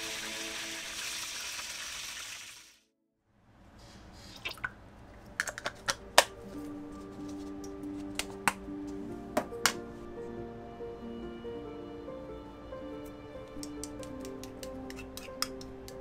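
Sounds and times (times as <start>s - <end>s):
background music: 0.0s - 1.3s, 5.6s - 16.0s
food sizzling in hot oil: 0.0s - 2.8s
bottle and bowl clicking: 13.5s - 16.0s.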